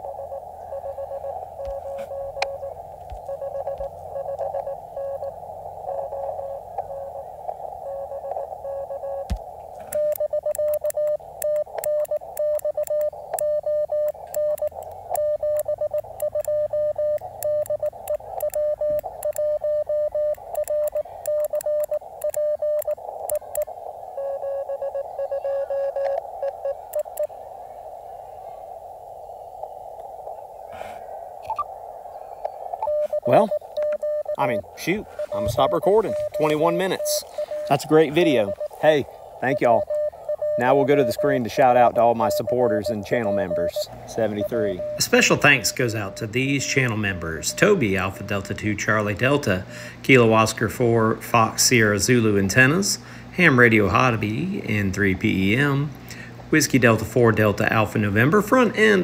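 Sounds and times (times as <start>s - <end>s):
loud morse code sidetone: 0.0s - 27.3s, 32.8s - 49.8s
faint morse code beeping: 0.0s - 28.5s, 32.4s - 50.3s
radio hiss: 0.0s - 59.0s
sharp keying clicks: 9.2s - 19.5s.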